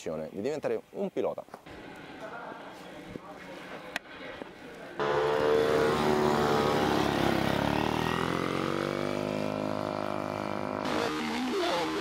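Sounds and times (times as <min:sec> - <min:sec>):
minibike engine revving: 0:05.0 - 0:12.0.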